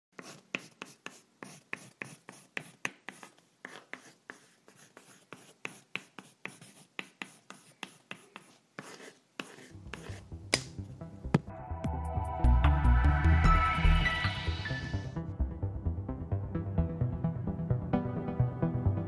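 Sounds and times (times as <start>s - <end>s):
pencil scratching on paper: 0.1s - 10.3s.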